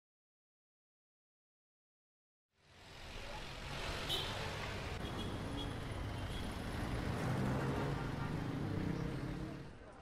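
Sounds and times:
car traffic: 2.6s - 10.0s.

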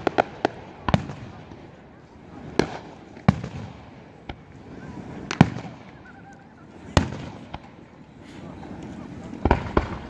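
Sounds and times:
small firework pops: 0.0s - 1.8s, 2.5s - 4.6s, 5.2s - 7.8s, 8.8s - 10.0s
fireworks bangs with echo: 0.0s - 7.9s, 8.5s - 10.0s.

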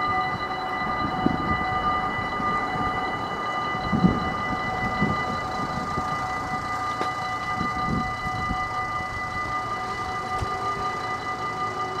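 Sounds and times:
level crossing warning bell: 0.0s - 12.0s.

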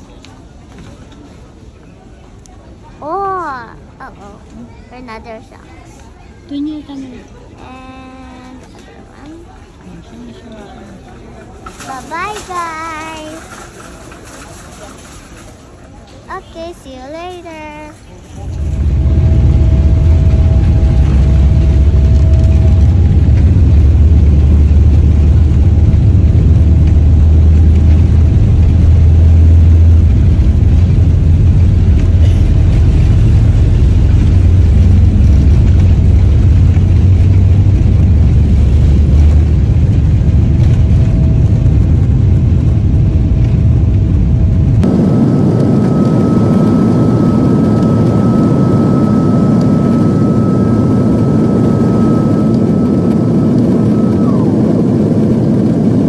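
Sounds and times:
airliner cabin rumble: 7.9s - 56.0s
jet engine roar with high whine: 11.6s - 56.0s.

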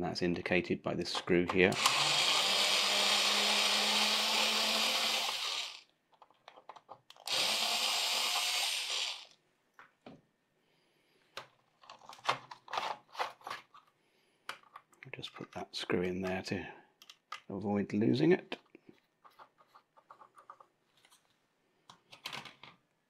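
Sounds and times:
electric screwdriver motor whine: 1.8s - 5.8s, 7.3s - 9.3s.

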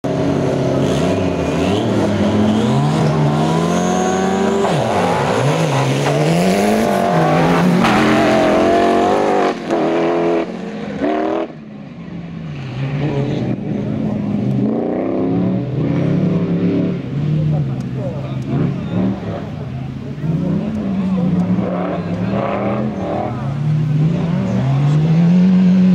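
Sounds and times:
car engines revving: 0.0s - 25.9s.

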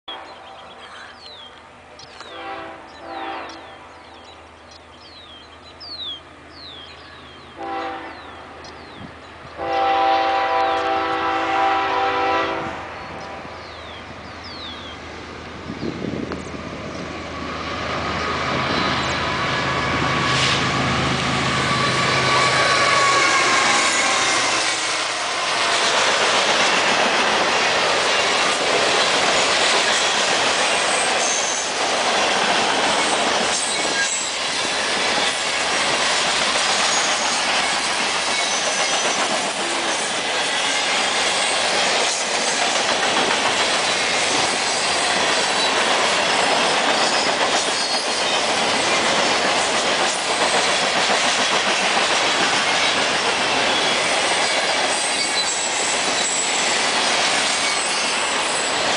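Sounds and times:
train rumbling past: 0.1s - 58.9s
high wheel squeals: 21.4s - 25.4s, 30.7s - 31.8s, 33.0s - 34.4s, 36.8s - 37.4s, 38.3s - 41.6s, 46.7s - 48.5s, 52.8s - 58.9s.

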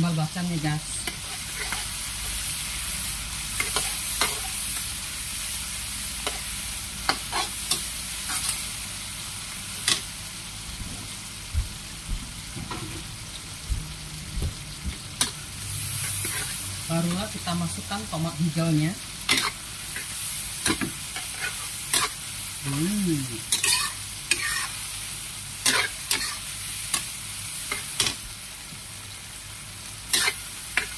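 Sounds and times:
food sizzling in hot oil: 0.0s - 30.9s
metal spatula scraping wok: 1.0s - 2.0s, 3.6s - 4.7s, 7.1s - 8.6s, 15.2s - 17.5s, 19.2s - 22.2s, 23.5s - 24.8s, 25.6s - 27.0s, 30.1s - 30.9s.

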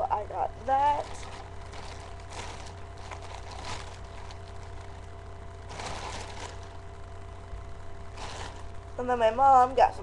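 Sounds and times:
electrical hum and hiss: 0.0s - 10.0s
fabric rustling: 0.8s - 7.1s, 8.0s - 8.9s.

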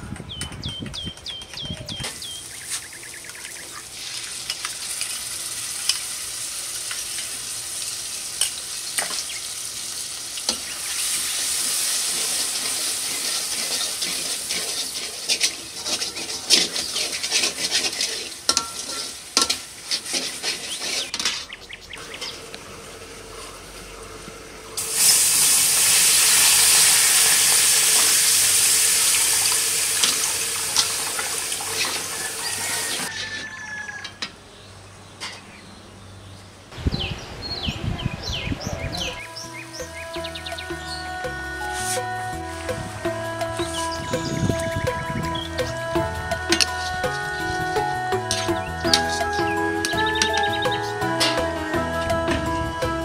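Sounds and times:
food sizzling in pan: 3.9s - 21.2s, 24.8s - 33.8s.

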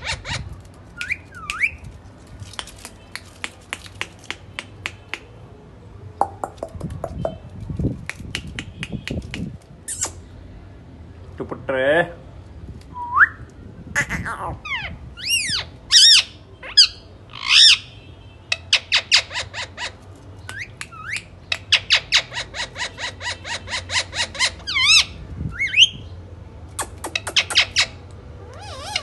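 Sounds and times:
parakeets squawking: 0.0s - 1.8s, 14.0s - 18.0s, 18.6s - 26.0s, 26.8s - 29.0s
parakeet sharp chips: 0.0s - 5.3s, 26.7s - 28.0s.

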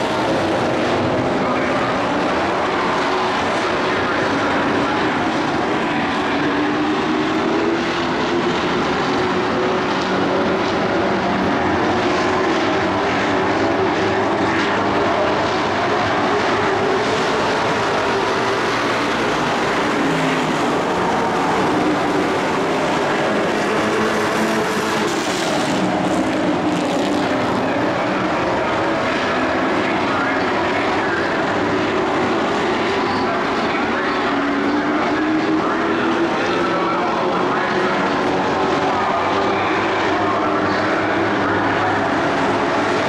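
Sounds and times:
race truck engines droning: 0.0s - 43.0s.

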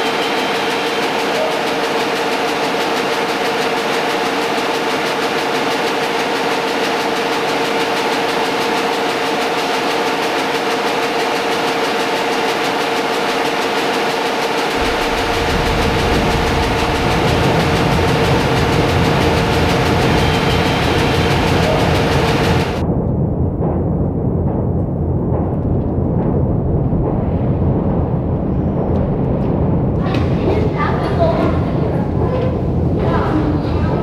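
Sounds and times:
mechanical drone with hum tones: 0.0s - 34.0s
deep low rumble: 14.8s - 34.0s.

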